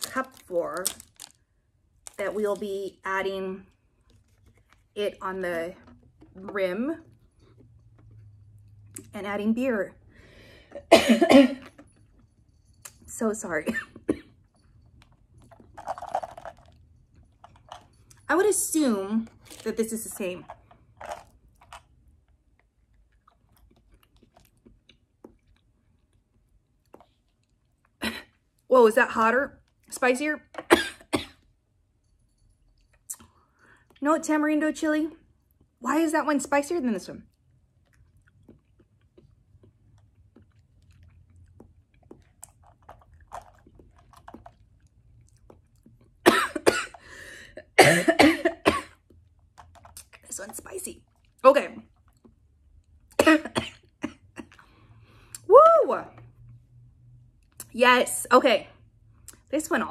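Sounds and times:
woman coughing hard: 0:10.8 - 0:11.6, 0:30.7 - 0:31.4, 0:46.2 - 0:47.0, 0:47.8 - 0:49.0, 0:53.2 - 0:54.4
chewing and mouth clicks: 0:20.6 - 0:28.0, 0:37.3 - 0:46.2, 0:49.0 - 0:50.3, 0:51.0 - 0:53.2.

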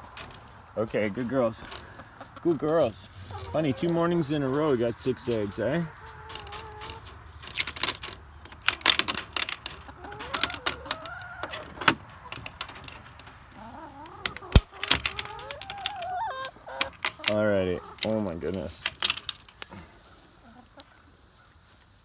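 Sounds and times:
hens clucking: 0:00.0 - 0:21.9
metal latch clicking and rattling: 0:06.1 - 0:13.4, 0:14.0 - 0:19.7.

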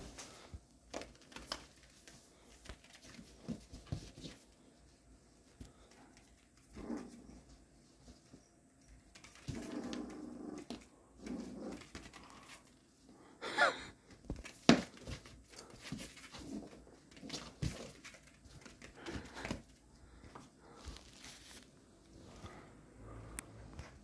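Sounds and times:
puppies growling: 0:06.6 - 0:07.6, 0:09.2 - 0:12.8.

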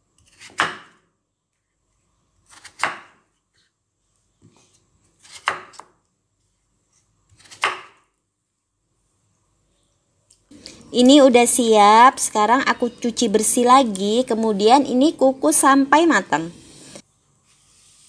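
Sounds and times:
knife cutting potatoes on wooden board: 0:00.1 - 0:01.0, 0:02.4 - 0:03.3, 0:05.1 - 0:05.9, 0:06.9 - 0:08.0.

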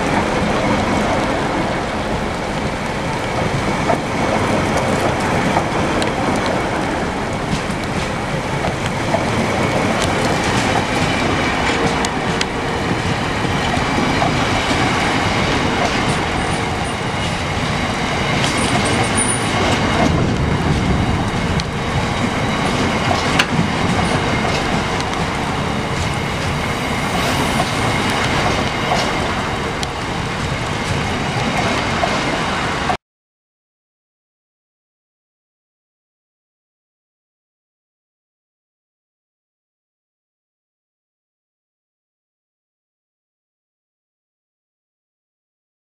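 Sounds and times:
train wheels rushing on rails: 0:00.0 - 0:33.0
train knocks: 0:02.6 - 0:32.5.

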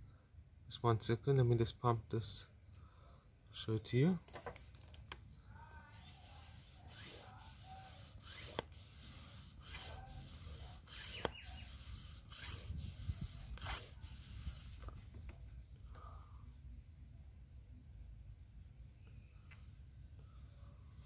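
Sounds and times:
hands rubbing rubber hoses: 0:05.8 - 0:15.4.

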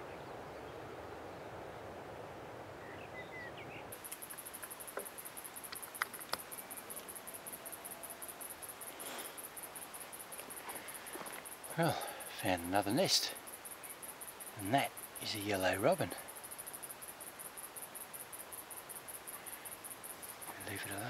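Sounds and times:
soft outdoor hiss: 0:00.0 - 0:21.0
high-pitched insect trill: 0:03.9 - 0:21.0
faint clicks: 0:04.0 - 0:07.2.

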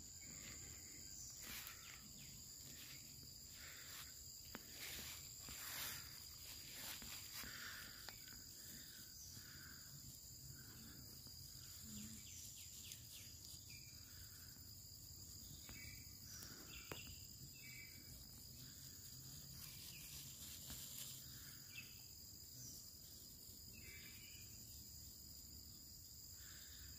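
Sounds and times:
high-pitched insect drone: 0:00.0 - 0:26.9.

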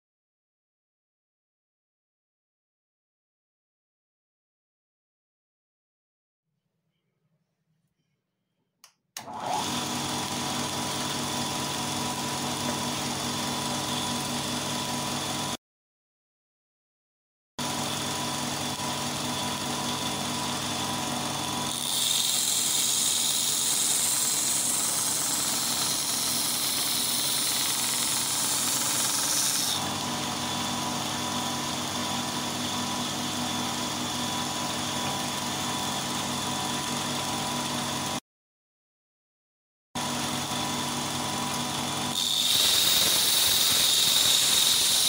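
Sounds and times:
belt grinder motor hum: 0:09.2 - 0:15.5, 0:17.7 - 0:38.2, 0:40.0 - 0:45.0
wood sanding hiss: 0:42.2 - 0:45.0.

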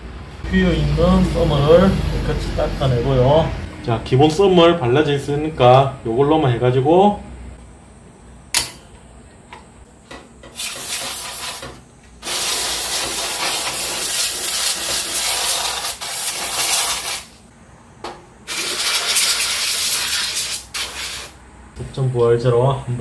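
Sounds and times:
aerosol spray hissing: 0:10.6 - 0:17.4, 0:18.5 - 0:21.4.

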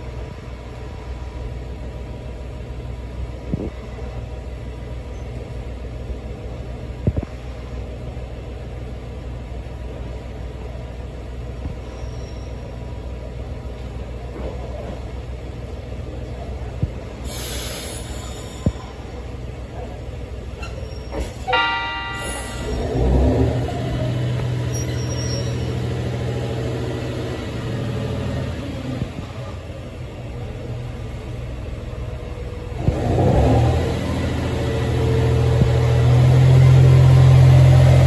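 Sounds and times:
railcar engine idling: 0:00.0 - 0:38.0
air release hiss: 0:17.2 - 0:18.9.

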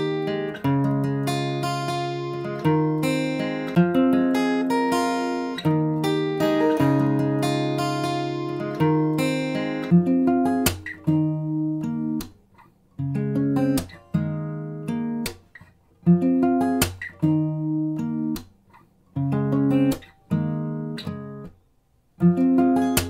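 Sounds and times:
guitar chords: 0:00.0 - 0:12.4, 0:13.0 - 0:21.6, 0:22.2 - 0:23.0.

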